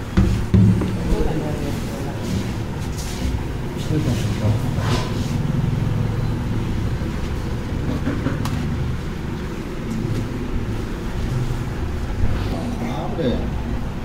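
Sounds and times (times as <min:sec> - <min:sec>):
vehicle engine rumbling: 0:00.8 - 0:14.0
leaf wiped on table: 0:04.0 - 0:05.4.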